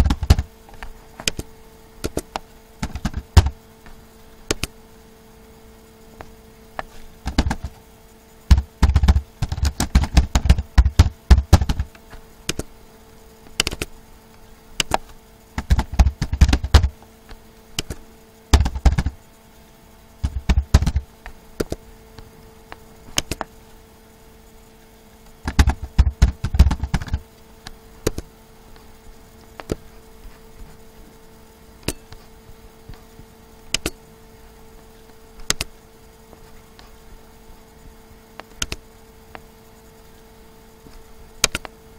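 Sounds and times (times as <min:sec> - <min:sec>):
keyboard typing: 0:00.0 - 0:00.5, 0:08.5 - 0:11.9, 0:14.8 - 0:16.9, 0:17.8 - 0:19.2, 0:20.2 - 0:21.0, 0:25.4 - 0:27.2
faint steady hum: 0:00.0 - 0:41.9.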